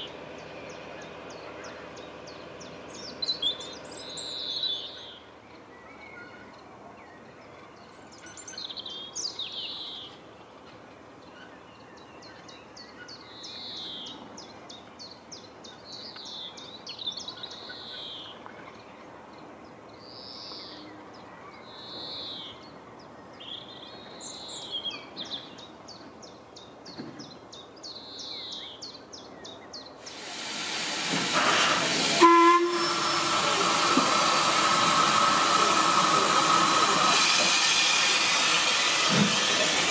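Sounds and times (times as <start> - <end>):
songbirds singing: 0.0 - 10.5, 11.2 - 30.2
steam locomotive hissing: 30.0 - 39.9.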